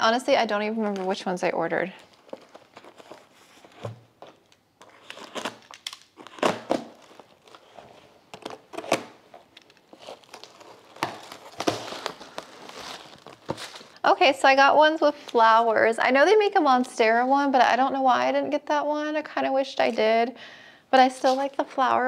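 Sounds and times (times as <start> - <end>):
cardboard crinkling and scraping: 0.8 - 14.0
tearing rustle: 2.0 - 14.0
packing tape peeling: 2.2 - 14.0.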